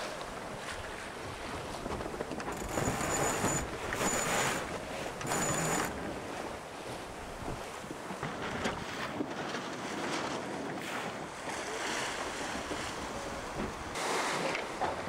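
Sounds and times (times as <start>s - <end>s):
wind and sea rushing: 0.0s - 15.0s
wind buffeting microphone: 5.9s - 14.0s.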